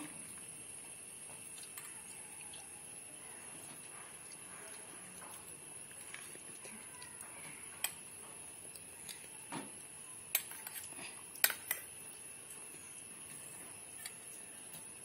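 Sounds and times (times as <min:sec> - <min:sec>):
faint steady hiss: 0:00.0 - 0:15.0
metal spoons clinking against bowls: 0:10.3 - 0:12.0, 0:14.0 - 0:14.4.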